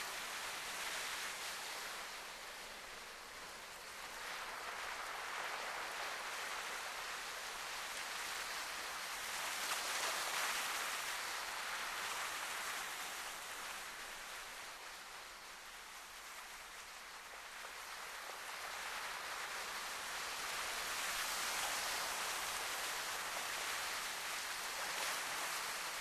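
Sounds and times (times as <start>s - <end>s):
surf washing against rocks: 16.1s - 26.0s.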